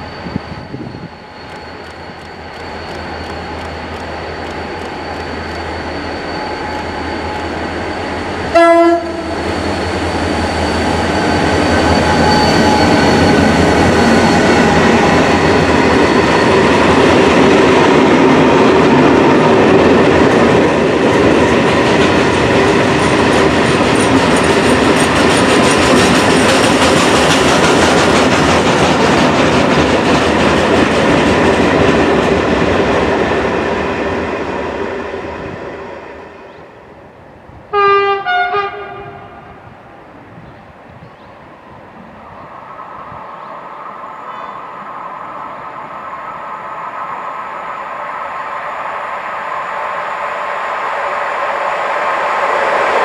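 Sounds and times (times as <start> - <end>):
train wheels rumbling and clacking: 0.0 - 36.6
locomotive horn blast: 8.5 - 9.4, 37.7 - 39.4.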